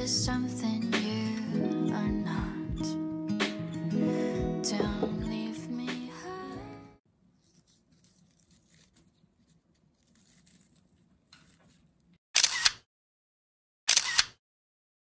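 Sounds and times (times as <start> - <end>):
camera shutter clicks: 12.4 - 12.9, 13.9 - 14.4.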